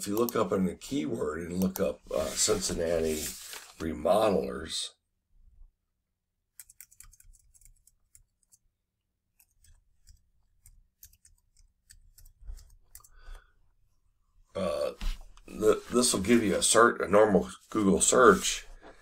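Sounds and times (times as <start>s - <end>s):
computer keyboard clicking: 6.6s - 8.6s.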